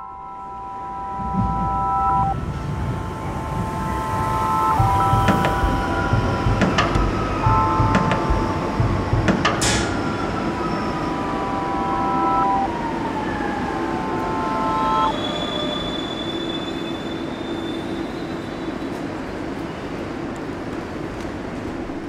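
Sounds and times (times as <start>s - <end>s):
whine falling in pitch: 0.0s - 15.2s
metro train rumble: 0.0s - 22.0s.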